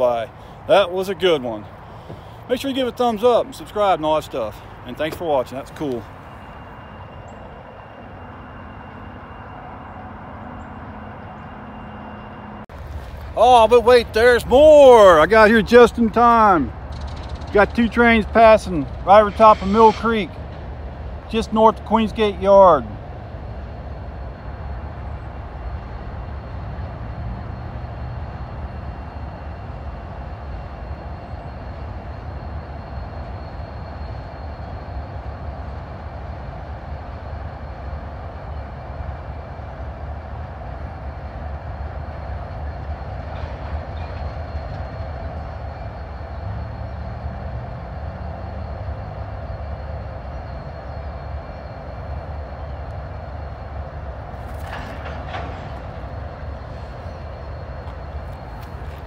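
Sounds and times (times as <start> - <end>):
freight train rumbling over bridge: 0.0 - 59.0
faint thin high whine: 2.2 - 22.9.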